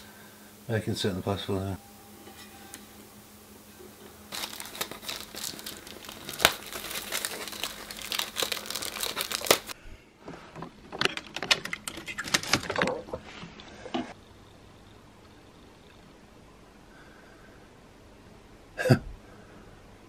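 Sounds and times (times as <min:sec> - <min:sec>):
paper packaging crinkling: 0:04.3 - 0:09.8, 0:10.8 - 0:13.2.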